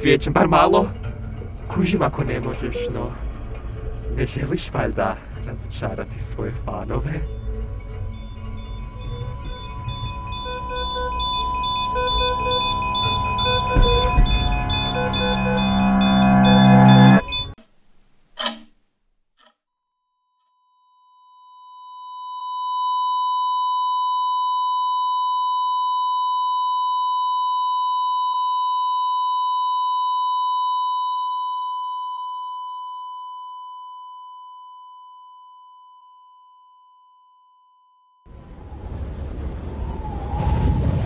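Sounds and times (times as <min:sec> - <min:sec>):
heart monitor flatline tone: 0:08.1 - 0:17.6, 0:21.4 - 0:38.2.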